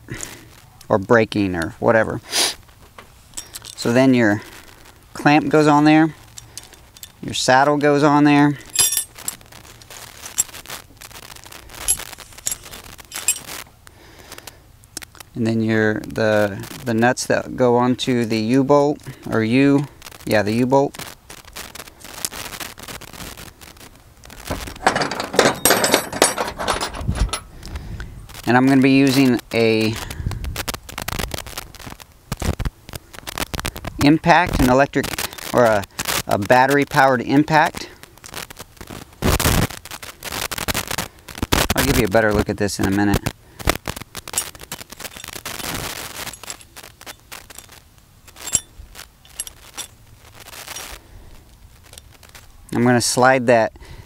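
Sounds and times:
steel hardware clicking and clinking: 3.0 - 4.0, 6.2 - 7.3, 8.7 - 9.4, 11.8 - 13.6, 24.5 - 27.5, 44.3 - 50.0
wire rope scraping: 8.6 - 13.7, 21.0 - 27.6, 43.7 - 51.0.

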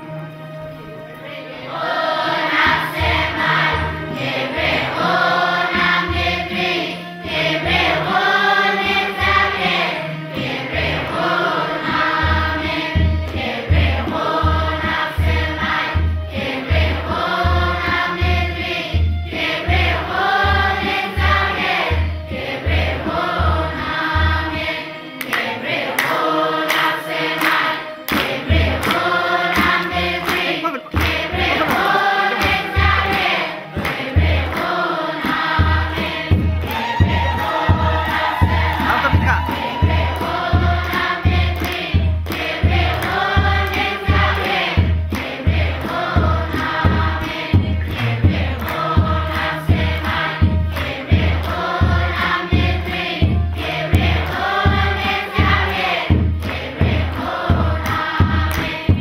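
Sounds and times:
children's choir singing a hymn: 1.0 - 59.0
hand claps: 25.2 - 35.7, 36.3 - 52.4, 55.8 - 59.0
low drum beating: 35.5 - 41.5.

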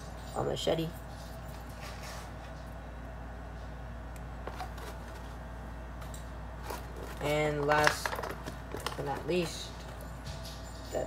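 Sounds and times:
steady low hum: 0.0 - 11.0
plastic clicks and rustles: 6.0 - 10.0.

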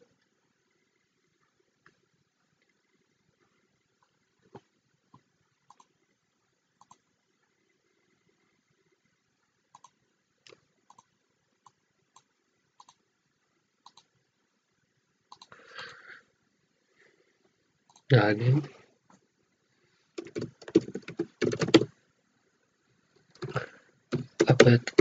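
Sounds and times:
computer mouse clicks: 4.0 - 6.0, 6.8 - 7.1, 9.7 - 13.0, 13.8 - 14.1, 15.3 - 15.6, 17.9 - 18.1, 20.2 - 21.9.

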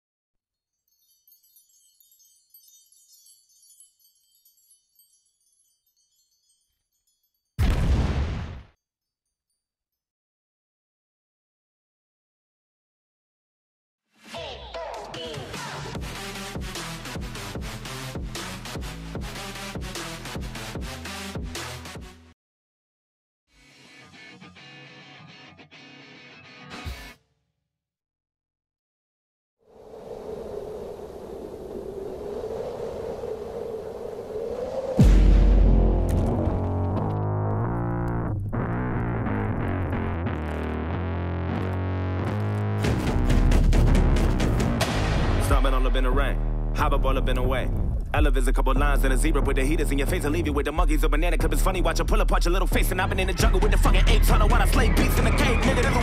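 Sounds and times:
high-pitched chimes tinkling: 0.6 - 7.6
rushing ambient noise: 29.7 - 36.1.

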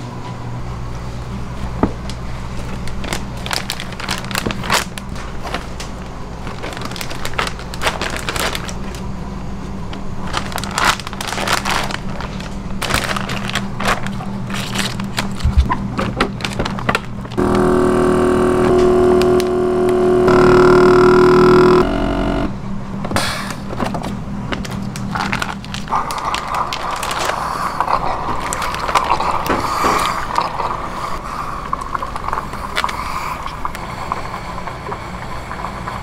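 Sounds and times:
loud steady hum: 0.0 - 36.0
plastic bag crinkling: 2.6 - 9.1, 10.2 - 17.4, 24.6 - 33.5.

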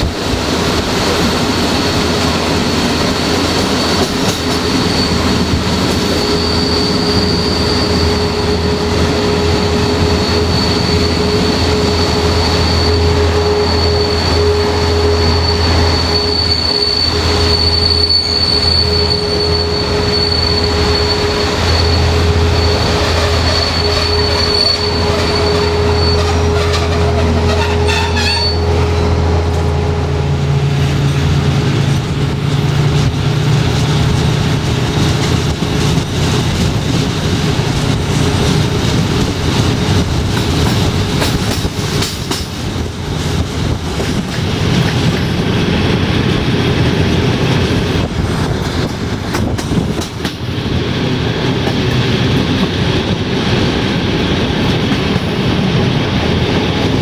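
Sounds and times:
train running rumble: 0.0 - 57.0
high wheel squeal: 1.0 - 31.9
wheels clicking over rail joints: 31.9 - 55.9.

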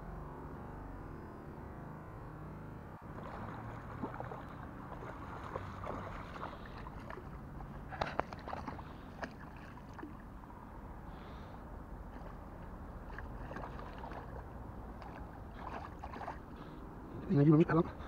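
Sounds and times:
fish thrashing and splashing: 3.1 - 10.3, 12.1 - 16.6.

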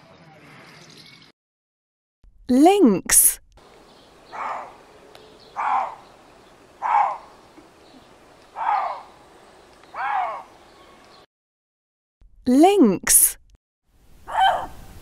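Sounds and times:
lynx calling: 3.6 - 11.0.

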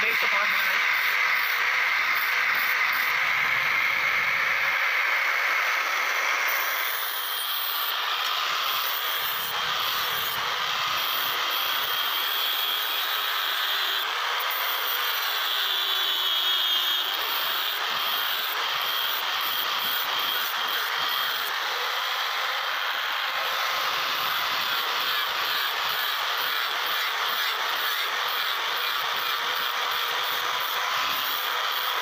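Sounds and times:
angle grinder grinding steel: 0.0 - 32.0.

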